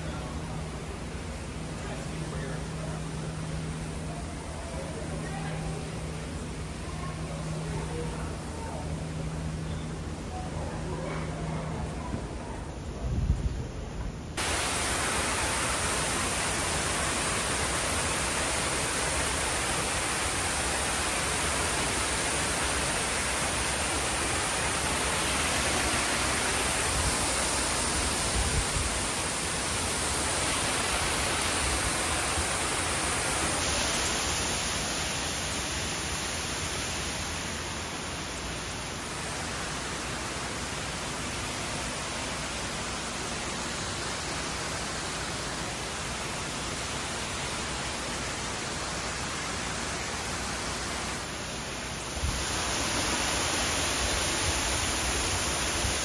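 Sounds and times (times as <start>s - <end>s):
waterfall rushing: 14.4s - 56.0s.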